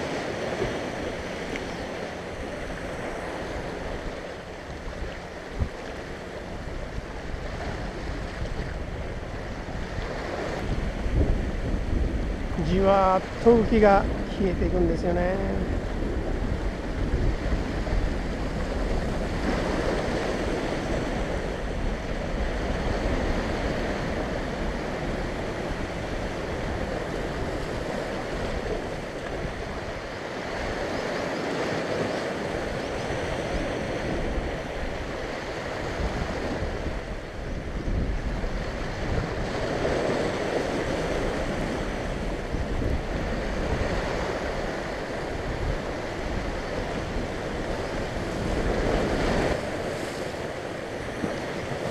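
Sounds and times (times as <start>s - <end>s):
wind rumbling on microphone: 0.0s - 51.9s.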